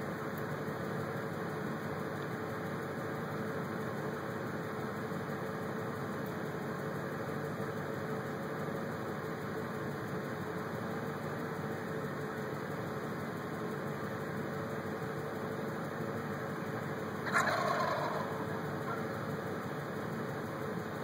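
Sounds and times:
turkeys gobbling: 0:17.2 - 0:19.2.

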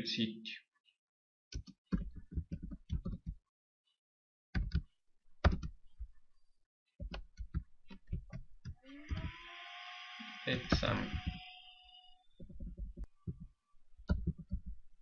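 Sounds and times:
computer keyboard typing: 0:01.6 - 0:03.4, 0:10.7 - 0:11.4, 0:14.1 - 0:14.7.

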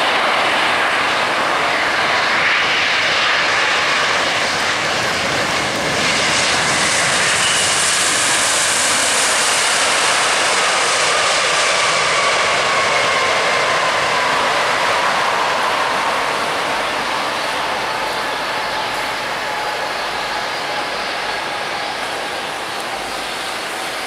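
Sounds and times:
jet engines running: 0:00.0 - 0:24.0
high whine: 0:11.9 - 0:24.0.

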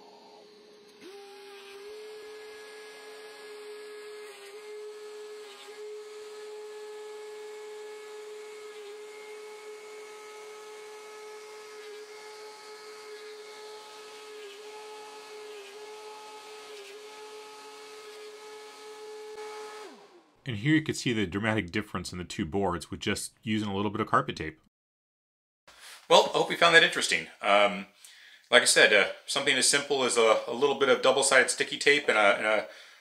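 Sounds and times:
thickness planer whining: 0:00.0 - 0:20.4.

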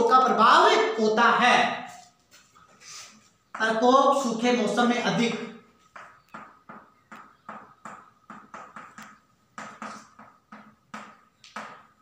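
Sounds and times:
chalk writing on blackboard: 0:02.3 - 0:03.6, 0:07.1 - 0:11.2.

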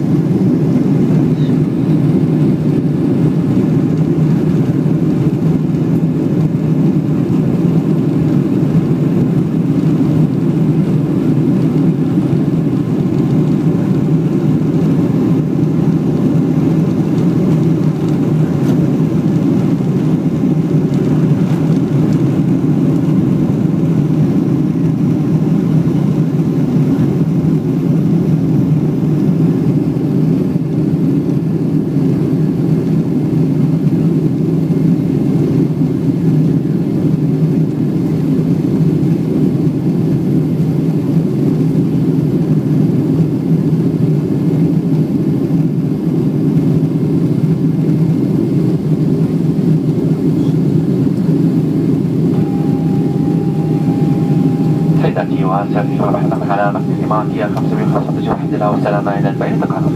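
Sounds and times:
jet engines and rushing air: 0:00.0 - 0:59.9.

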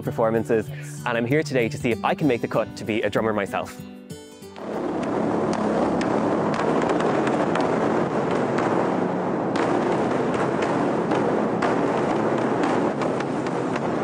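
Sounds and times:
barrel drums beaten rapidly: 0:04.6 - 0:14.0.

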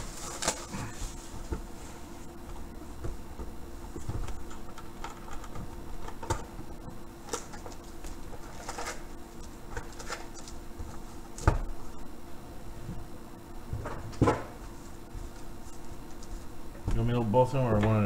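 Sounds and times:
foil packs crinkling: 0:00.0 - 0:01.4.

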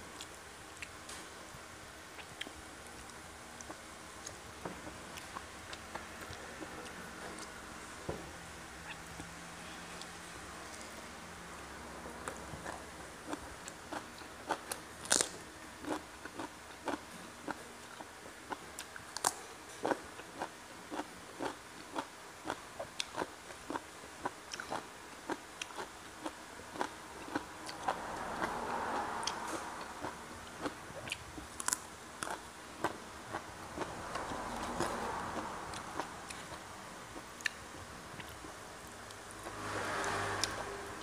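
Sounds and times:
chewing crunchy food: 0:12.2 - 0:36.6.

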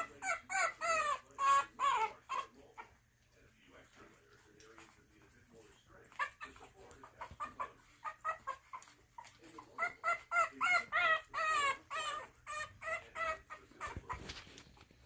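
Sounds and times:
puppies squealing and yelping: 0:00.0 - 0:03.0, 0:06.0 - 0:14.9.

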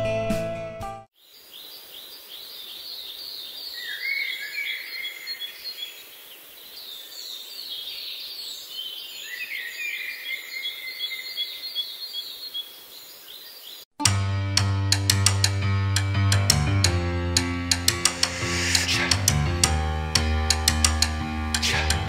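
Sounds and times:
birds calling and singing: 0:01.2 - 0:13.9.

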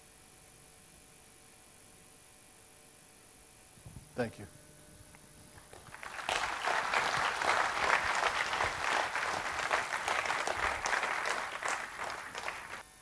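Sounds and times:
audience applauding: 0:05.6 - 0:12.8.

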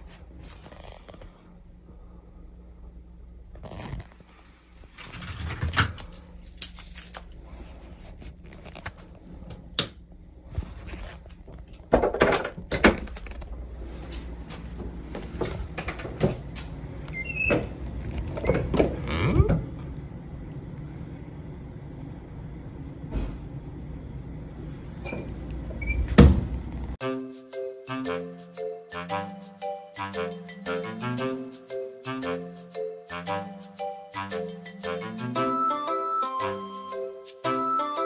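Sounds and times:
objects being handled: 0:03.6 - 0:09.6.

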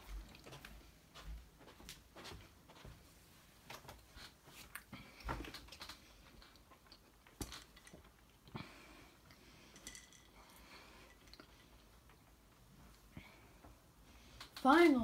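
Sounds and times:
faint chewing: 0:00.0 - 0:00.9, 0:03.7 - 0:13.0.

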